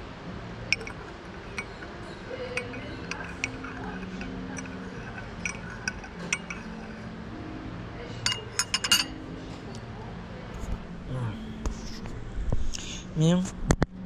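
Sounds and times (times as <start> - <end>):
teaspoon clinking in teacup: 0.7 - 7.1, 8.2 - 9.2.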